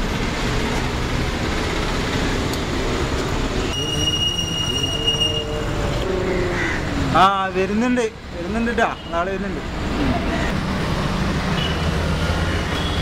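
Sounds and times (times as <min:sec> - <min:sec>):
high wheel squeal: 0:03.6 - 0:06.0.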